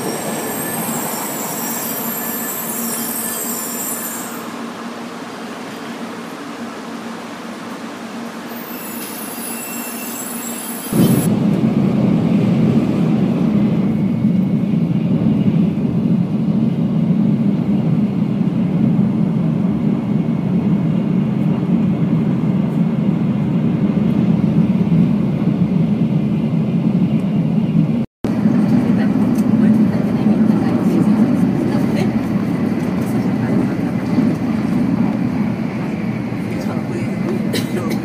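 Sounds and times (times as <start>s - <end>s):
train cabin rumble: 10.9s - 38.0s.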